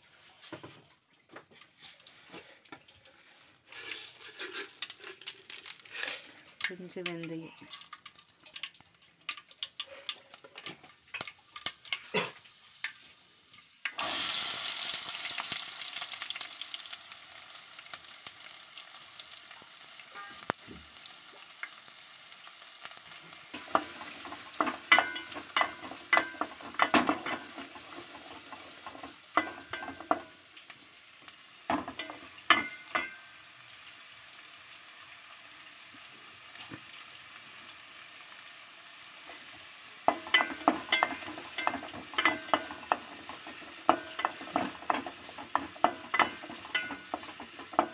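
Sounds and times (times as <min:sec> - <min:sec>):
seeds crackling in hot oil: 0:01.4 - 0:47.9
shallots sizzling in oil: 0:01.6 - 0:47.9
spatula scraping pan: 0:03.2 - 0:05.2, 0:23.5 - 0:30.4, 0:40.1 - 0:47.9.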